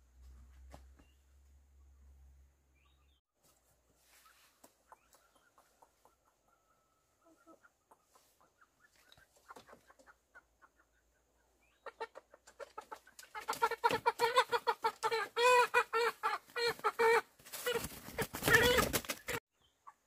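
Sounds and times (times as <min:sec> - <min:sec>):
chicken clucking: 0:03.5 - 0:20.0
chicken squawking loudly: 0:13.3 - 0:19.4.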